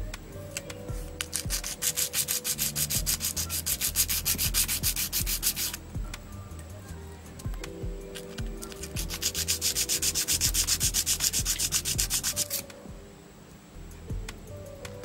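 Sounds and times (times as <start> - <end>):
sandpaper rubbing on metal pins: 1.2 - 5.8, 8.3 - 12.7.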